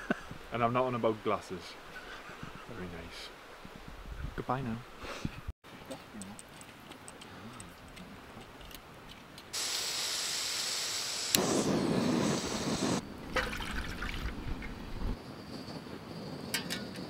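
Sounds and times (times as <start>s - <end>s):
gas stove hissing: 9.5s - 13.0s
water pouring into metal tin: 13.3s - 14.4s.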